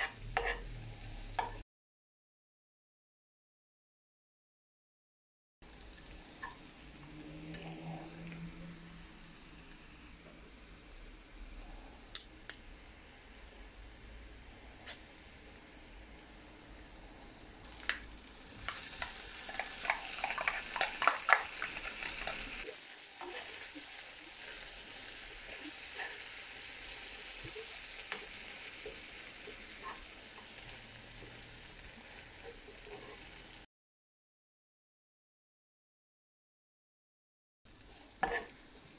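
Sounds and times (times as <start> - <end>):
spoon clinking and scraping a pan: 0.0 - 0.7, 1.3 - 1.6, 18.6 - 22.6, 38.2 - 38.5
food sizzling in a frying pan: 0.0 - 1.6, 5.6 - 33.7, 37.7 - 38.9.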